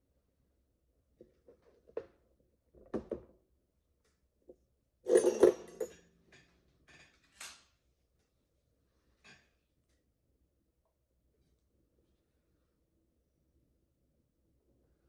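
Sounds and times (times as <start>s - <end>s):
metal rattling clatter: 5.1s - 6.0s
light metal clinks: 5.1s - 6.4s
metal instruments clicking and knocking: 5.1s - 7.5s.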